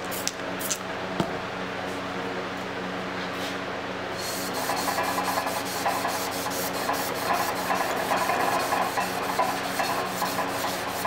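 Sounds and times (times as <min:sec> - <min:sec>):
sandpaper scrubbing on steel blade: 0:04.2 - 0:11.0.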